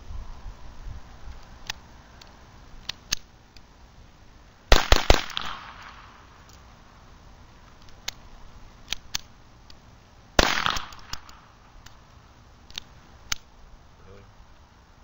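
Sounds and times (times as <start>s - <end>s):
pistol shot with echo: 4.7s - 6.2s, 10.4s - 11.5s.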